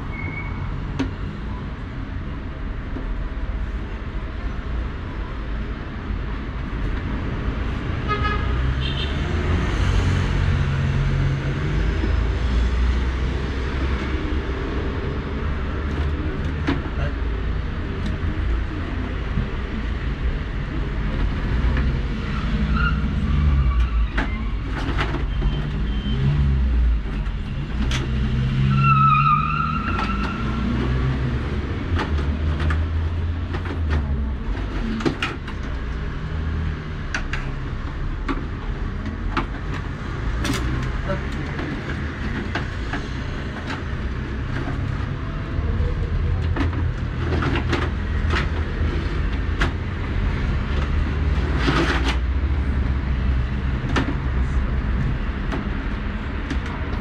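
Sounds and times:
low rumble of road traffic: 0.0s - 57.0s
brief high squeal: 0.1s - 0.7s.

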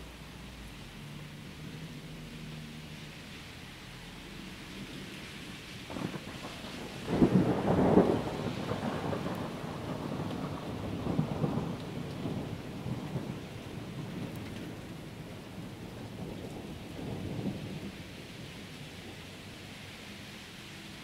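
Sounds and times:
steady rainfall: 0.0s - 21.0s
thunder rumbling: 4.8s - 19.4s.

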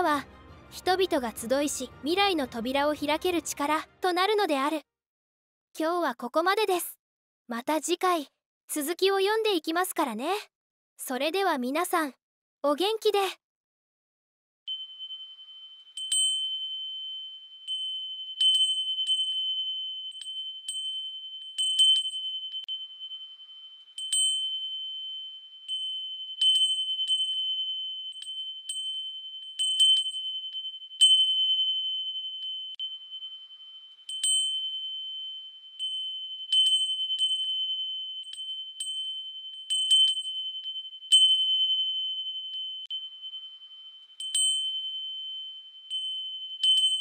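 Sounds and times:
chimes ringing: 14.7s - 47.0s
high ringing tone: 14.7s - 47.0s.

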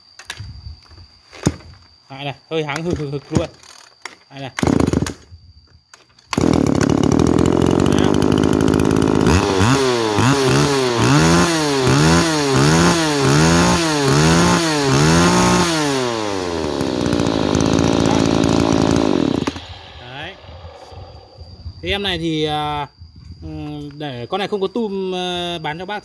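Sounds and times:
brushcutter engine revving: 4.6s - 5.1s, 6.4s - 21.2s.

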